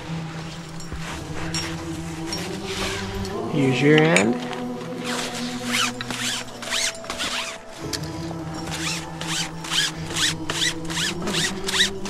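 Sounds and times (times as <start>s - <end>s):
rope swishing on snow: 0.0s - 3.7s, 8.5s - 12.0s
music with sustained tones: 0.0s - 12.0s.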